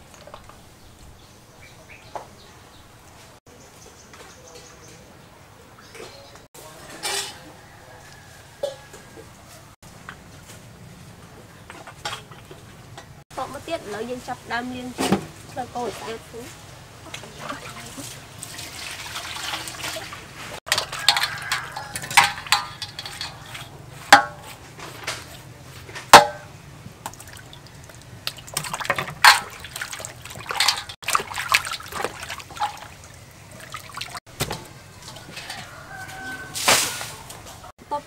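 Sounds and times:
water sloshing and splashing: 14.8 - 37.7
water poured from a scoop: 17.2 - 23.7, 27.1 - 34.2
knocks against metal bowl: 24.1 - 24.4, 26.1 - 26.5.

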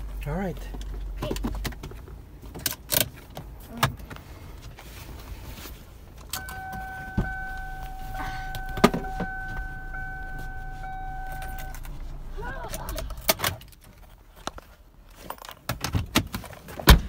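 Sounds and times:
clicks and knocks in a car: 6.2 - 11.9, 15.4 - 17.0
electronic warning tone: 6.3 - 12.4.

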